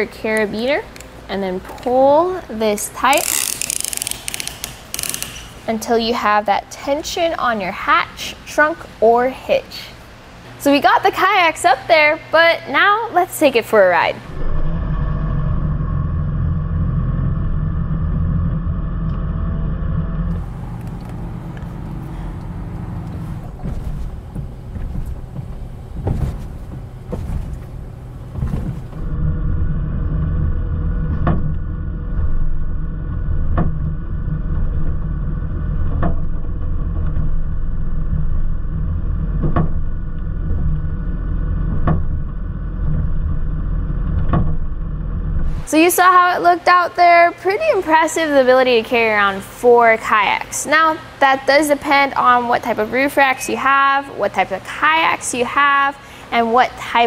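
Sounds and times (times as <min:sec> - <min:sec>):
road and wind noise: 0:17.4 - 0:33.1.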